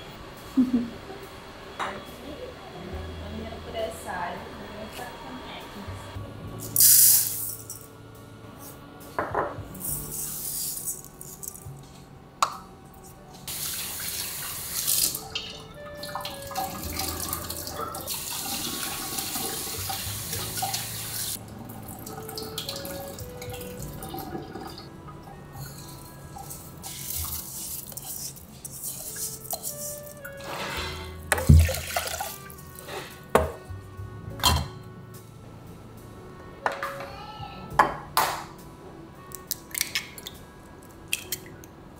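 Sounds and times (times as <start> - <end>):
soft background music: 0.0 - 41.9
tap water running into a bowl: 13.5 - 24.9, 31.3 - 32.6.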